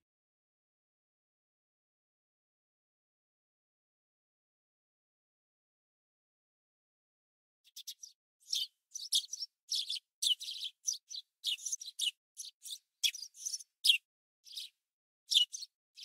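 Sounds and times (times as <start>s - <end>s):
small bird chirping: 7.7s - 16.0s.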